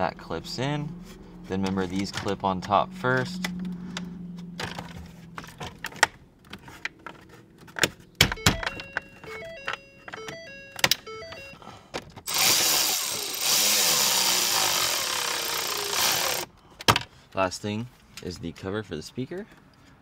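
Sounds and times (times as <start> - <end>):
stepped electronic tones: 8.4 - 11.6
cordless drill driving screws: 12.3 - 16.5.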